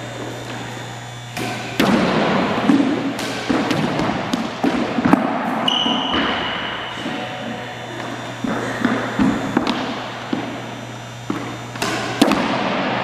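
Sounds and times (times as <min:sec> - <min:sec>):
squash ball knocks: 0:01.3 - 0:06.7, 0:08.0 - 0:13.0.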